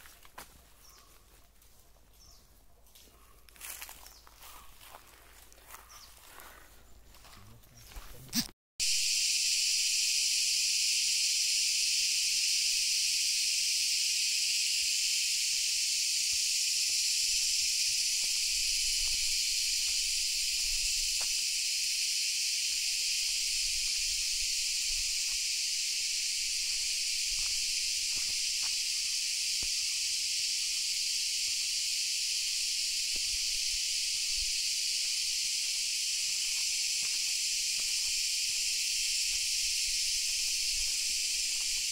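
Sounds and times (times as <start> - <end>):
insects buzzing: 8.8 - 41.9.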